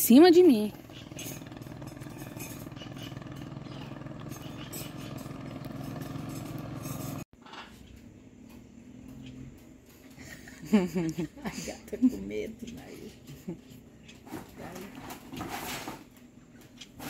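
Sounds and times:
motor humming: 0:00.1 - 0:07.2.

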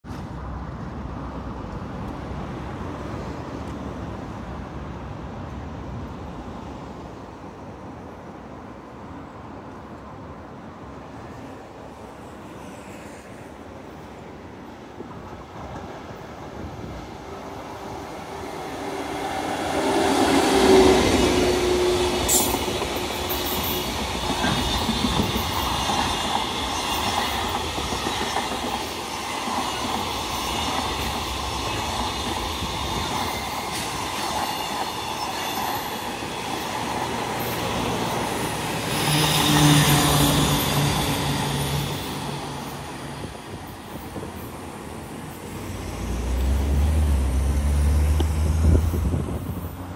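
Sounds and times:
electric locomotive passing: 0:00.1 - 0:49.9
wagon wheels rumbling on rail: 0:18.3 - 0:49.9.

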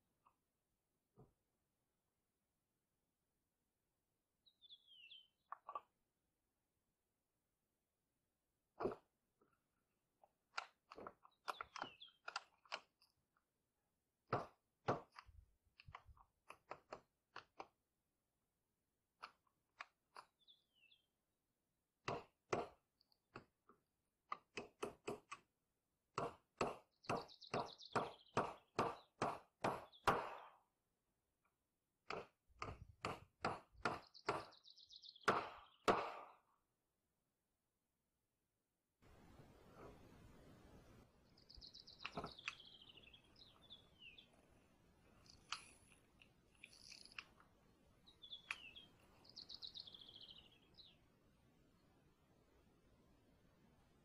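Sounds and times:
hammer driving nails into wood: 0:14.2 - 0:17.8, 0:22.0 - 0:23.5, 0:24.3 - 0:25.5, 0:26.1 - 0:30.6, 0:32.0 - 0:34.6, 0:35.2 - 0:36.4.

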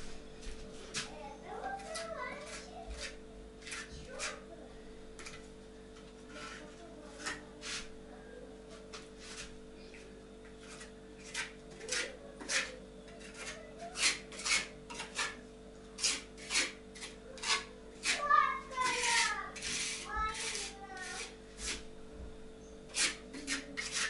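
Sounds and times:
faint steady hum: 0:00.0 - 0:24.0
trowel scraping on brick: 0:00.9 - 0:04.4, 0:06.3 - 0:08.0, 0:10.5 - 0:15.4, 0:16.0 - 0:21.9, 0:22.9 - 0:24.0.

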